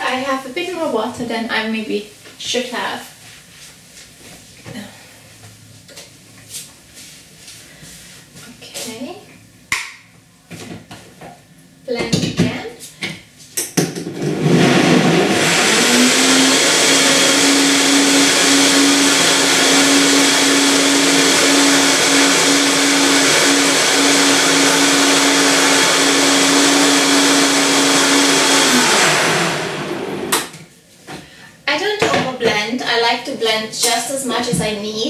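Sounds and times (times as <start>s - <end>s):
blender motor whining: 14.1s - 30.5s.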